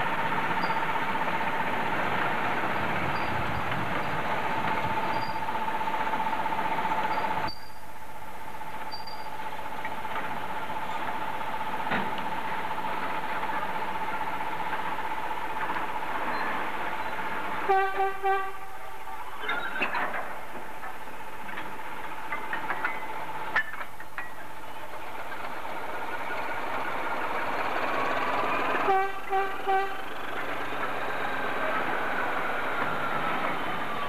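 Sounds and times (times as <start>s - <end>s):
freight train rolling past: 0.0s - 34.0s
locomotive horn toots: 17.6s - 19.2s, 28.7s - 30.3s
wagons clanking: 19.1s - 34.0s.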